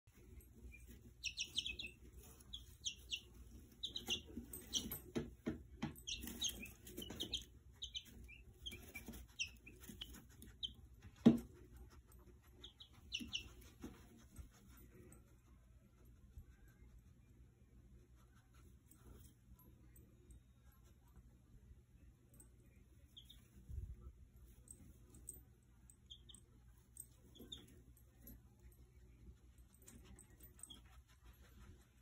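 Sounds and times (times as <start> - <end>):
chicks peeping: 0.7 - 11.4, 12.6 - 14.0, 23.2 - 23.8.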